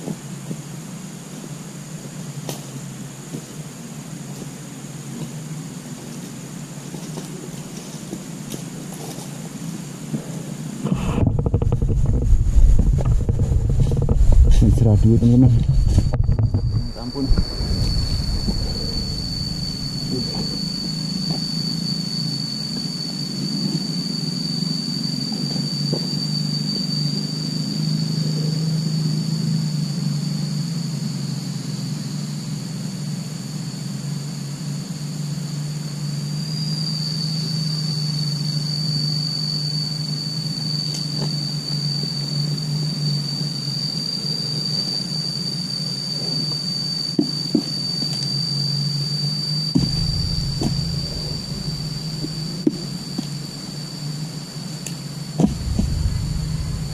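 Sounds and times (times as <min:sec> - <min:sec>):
high insect whine: 0:00.0 - 0:56.9
low hum: 0:10.8 - 0:24.3, 0:49.7 - 0:56.9.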